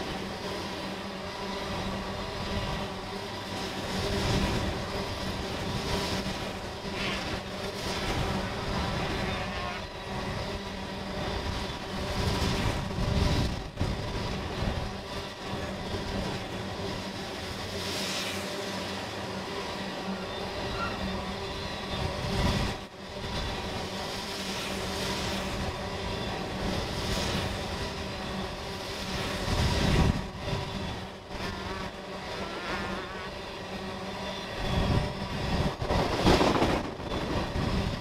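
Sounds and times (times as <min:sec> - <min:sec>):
train wheels rumbling on rails: 0:09.9 - 0:38.0.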